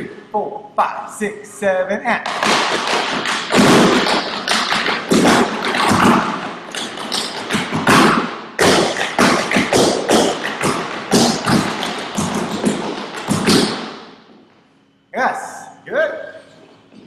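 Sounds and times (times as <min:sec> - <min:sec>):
tap shoes striking floor: 0:02.2 - 0:14.0.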